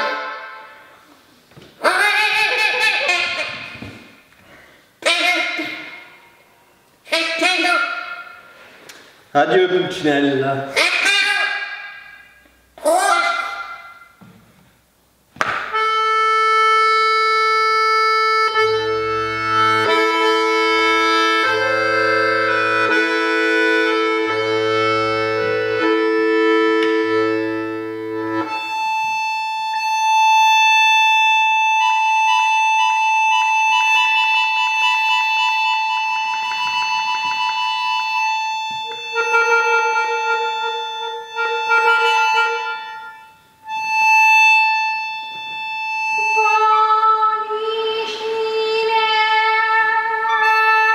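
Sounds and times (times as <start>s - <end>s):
button accordion playing: 0.0s - 1.0s, 15.7s - 47.1s, 50.2s - 50.9s.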